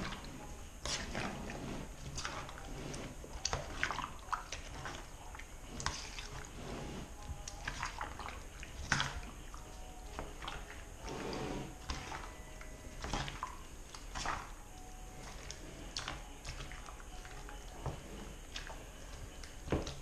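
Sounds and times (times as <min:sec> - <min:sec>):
wet squelching and slopping: 0:03.4 - 0:06.5, 0:07.6 - 0:11.2, 0:13.0 - 0:14.6, 0:18.5 - 0:18.8.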